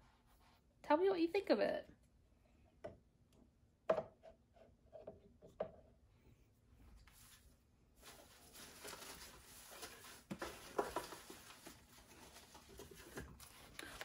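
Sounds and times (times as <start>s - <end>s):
rustling shredded paper: 8.0s - 13.8s.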